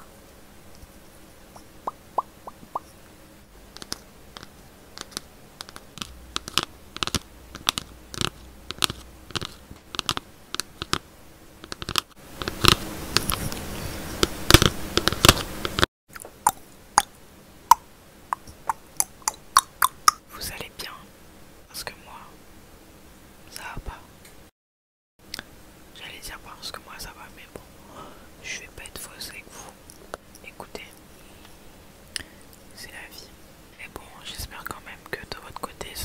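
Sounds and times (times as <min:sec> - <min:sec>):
scratchy rustling: 0:03.8 - 0:11.0
tapping on a book: 0:03.8 - 0:11.0, 0:14.2 - 0:15.8.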